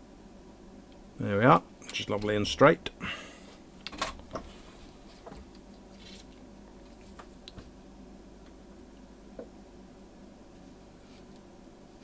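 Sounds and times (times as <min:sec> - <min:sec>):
low steady hum: 0:00.0 - 0:12.0
soft hiss: 0:10.3 - 0:12.0.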